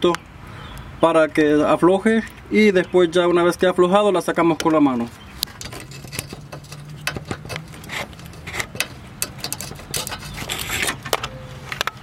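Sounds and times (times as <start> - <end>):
rubber hose clicks and scrapes: 5.4 - 12.0.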